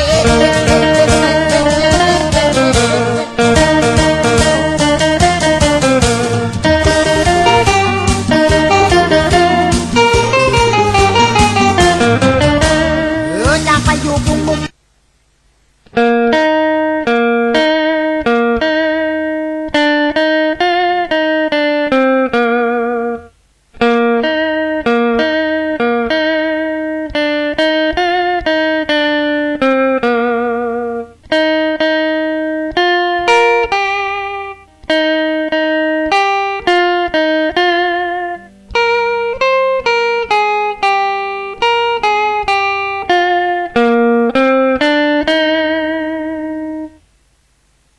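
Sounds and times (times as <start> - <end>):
electric guitar solo with vibrato: 0.0 - 14.7, 16.0 - 47.0.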